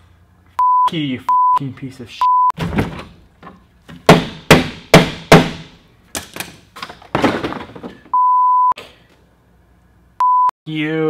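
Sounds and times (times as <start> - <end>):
plastic panel knocks and rattles: 6.8 - 8.0.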